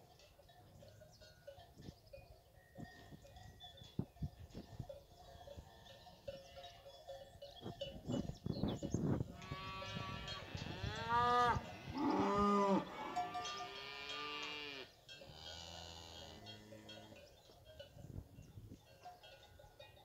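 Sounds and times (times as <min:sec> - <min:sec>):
cattle mooing: 0:09.4 - 0:17.0.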